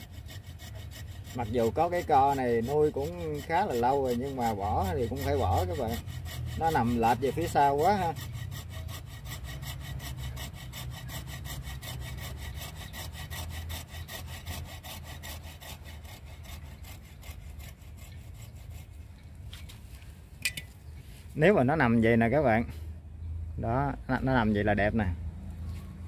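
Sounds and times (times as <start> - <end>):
hand saw cutting branch: 0.0 - 19.9.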